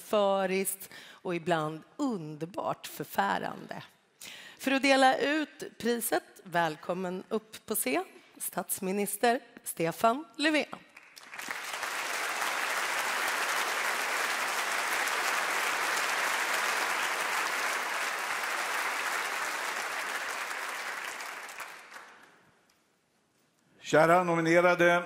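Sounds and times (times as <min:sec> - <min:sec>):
audience applauding: 0:10.9 - 0:22.4.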